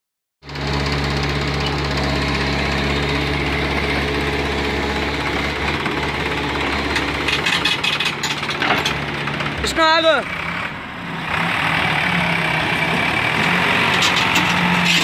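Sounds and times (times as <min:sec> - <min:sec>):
tractor diesel engine chugging: 0:00.5 - 0:10.6.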